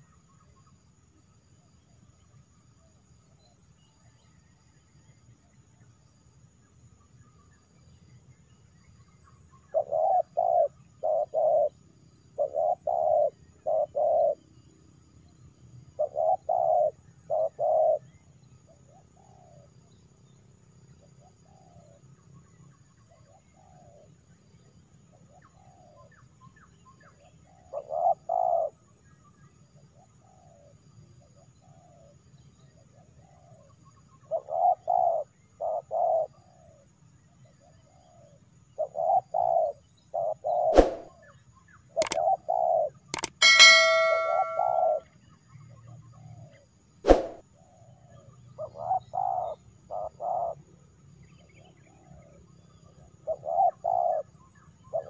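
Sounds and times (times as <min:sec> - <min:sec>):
sharp clicks: 0:43.2 - 0:44.8.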